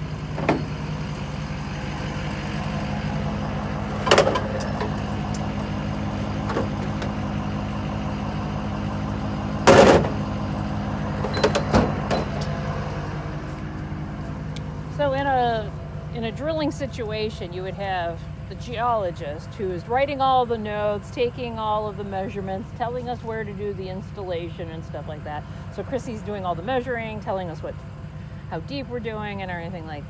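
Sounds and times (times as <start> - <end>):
knocks and clunks: 0.0 - 1.2, 3.9 - 7.3, 9.6 - 10.4, 11.2 - 12.7
drill rig engine idling: 0.0 - 30.0.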